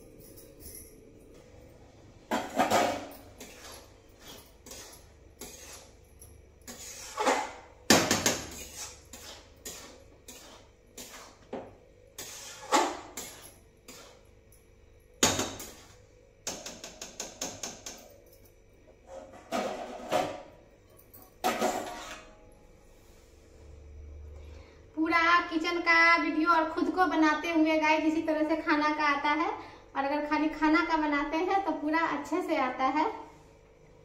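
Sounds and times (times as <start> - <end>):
metal spatula scraping a steel pan: 3.4 - 6.0, 6.6 - 7.6, 8.5 - 11.5, 12.2 - 14.2, 21.5 - 22.4.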